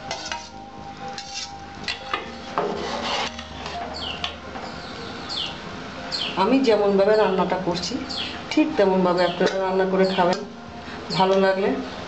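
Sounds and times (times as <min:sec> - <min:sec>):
metal spoon scraping metal bowl: 0:00.0 - 0:04.0.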